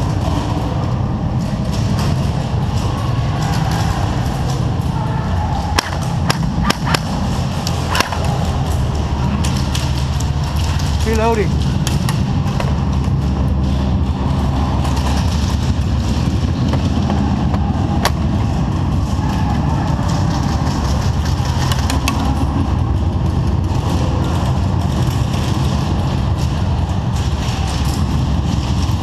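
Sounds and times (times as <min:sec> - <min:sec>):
low engine-like drone: 0:00.0 - 0:29.0.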